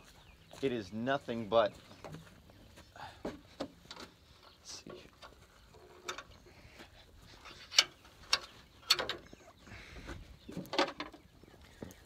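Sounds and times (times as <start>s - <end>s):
hood latch metal clicks: 7.7s - 9.3s.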